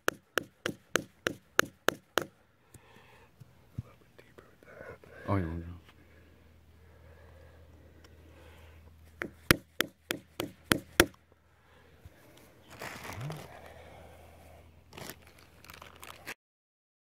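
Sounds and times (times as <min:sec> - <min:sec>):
metal tool tapping into bark: 0:00.0 - 0:02.3, 0:09.2 - 0:11.2.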